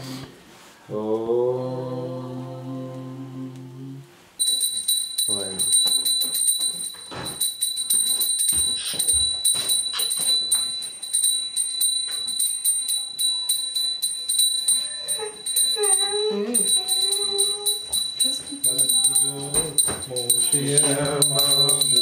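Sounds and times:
hand bell ringing rapidly: 0:04.4 - 0:22.0.

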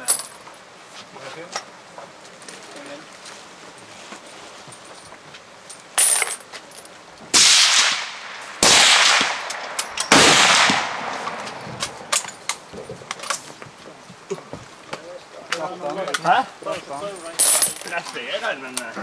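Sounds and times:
rifle shots with echo: 0:07.4 - 0:12.1.

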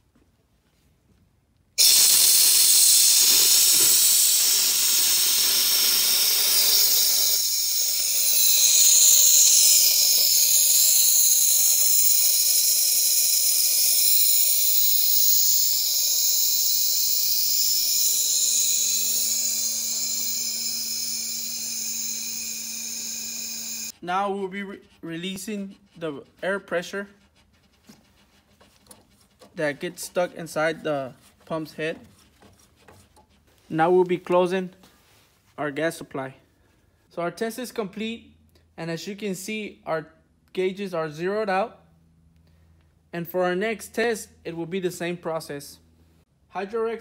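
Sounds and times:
loud hiss of venting gas: 0:01.8 - 0:23.9.

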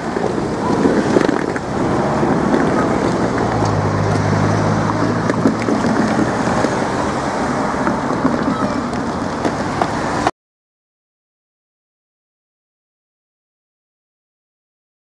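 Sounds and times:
passing vehicle engine hum: 0:00.0 - 0:10.3
road traffic: 0:00.0 - 0:10.4.

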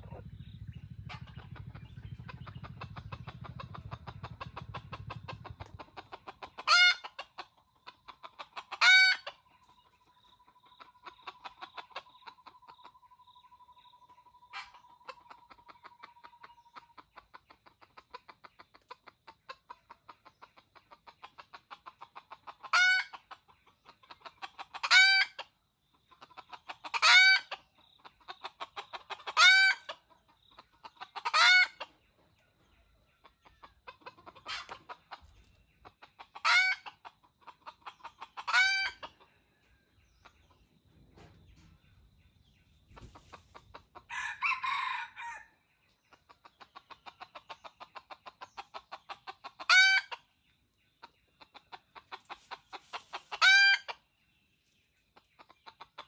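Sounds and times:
rooster clucking calls: 0:02.4 - 0:09.4, 0:26.2 - 0:32.0, 0:33.4 - 0:39.3, 0:43.6 - 0:45.5, 0:46.4 - 0:50.2, 0:51.4 - 0:54.0
harsh long rooster call: 0:44.1 - 0:45.5.

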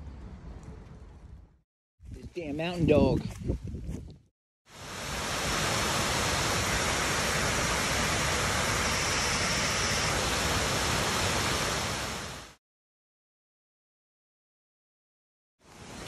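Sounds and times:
waterfall rushing: 0:04.7 - 0:12.6.

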